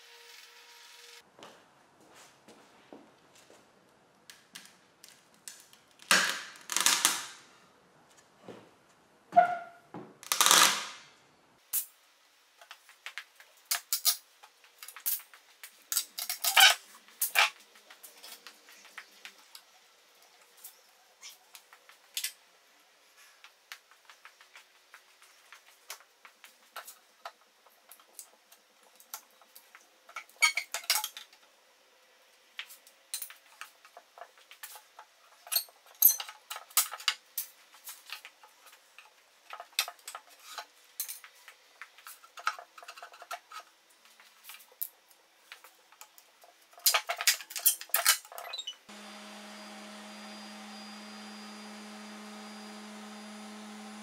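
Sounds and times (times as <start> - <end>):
orbital sander humming: 48.9 - 54.0.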